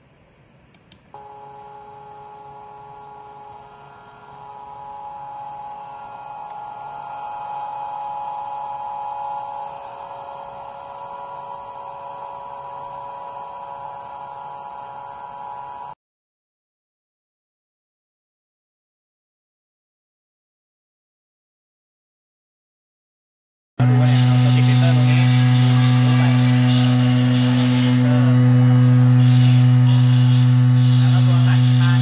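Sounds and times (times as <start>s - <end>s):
vibrator motor humming: 1.2s - 16.0s, 23.8s - 32.0s.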